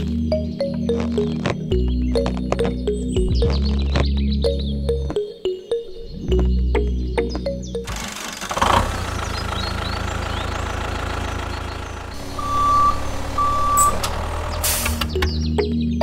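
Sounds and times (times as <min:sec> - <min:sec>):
tractor engine running: 0:06.3 - 0:15.7.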